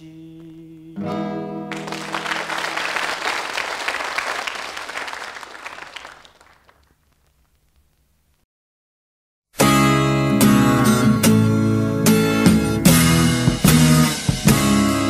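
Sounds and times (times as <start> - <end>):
audience applauding: 1.7 - 7.3.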